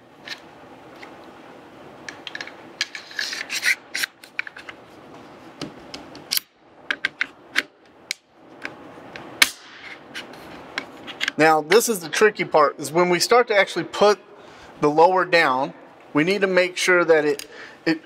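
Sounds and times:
metal sliding and clicking: 2.1 - 4.8.

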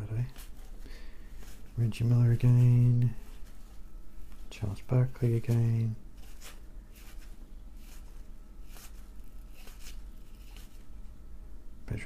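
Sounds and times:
faint low hum: 0.0 - 12.0
cards swishing and snapping: 5.2 - 10.9.

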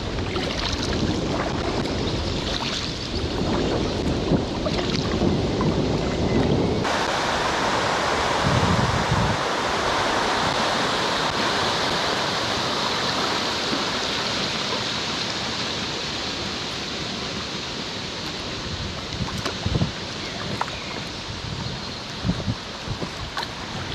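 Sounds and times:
river water rushing: 6.2 - 23.9.

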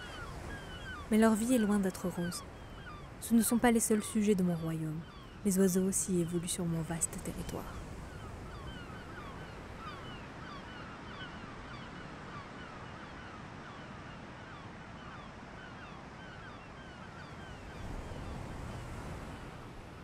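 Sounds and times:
gulls calling: 0.0 - 13.8
surf and wind rushing: 0.0 - 20.0.

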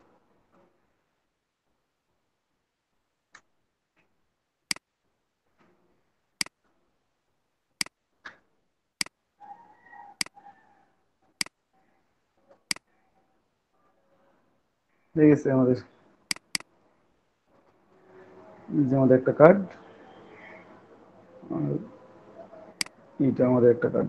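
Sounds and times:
computer mouse clicks: 16.3 - 16.7.

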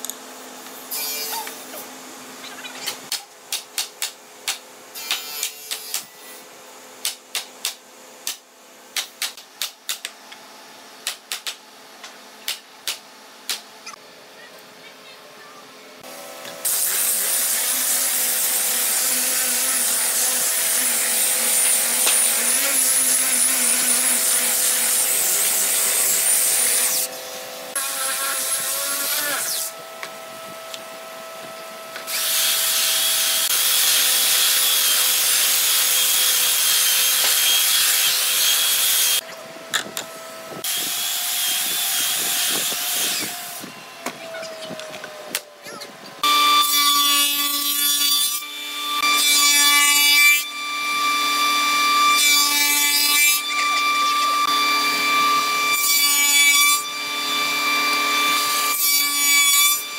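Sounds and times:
power sander on wood: 16.0 - 29.8, 48.7 - 59.9.

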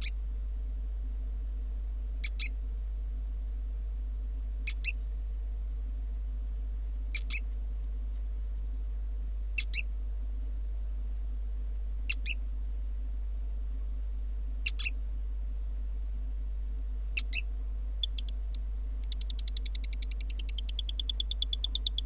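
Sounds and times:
low electrical hum: 0.0 - 22.0
gecko chirping: 14.6 - 14.9, 17.2 - 22.0.

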